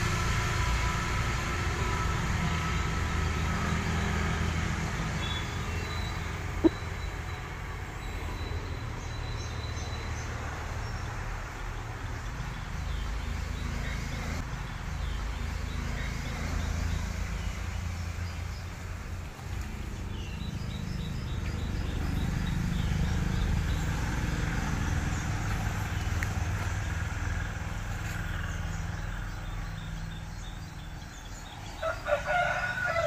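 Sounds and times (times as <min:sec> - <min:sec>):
small birds chirping: 0:02.6 - 0:32.4
low outdoor rumble: 0:12.6 - 0:32.0.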